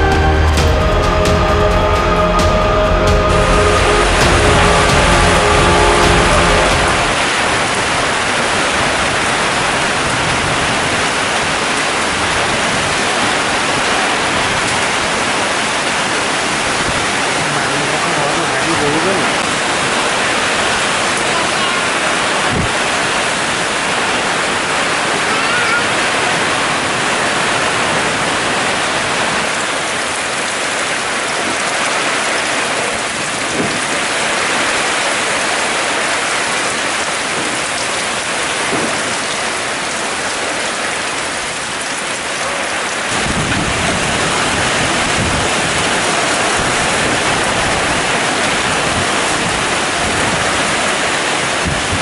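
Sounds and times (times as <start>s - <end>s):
heavy rain in strong wind: 0.0s - 52.0s
wind buffeting microphone: 22.4s - 23.8s, 43.1s - 52.0s.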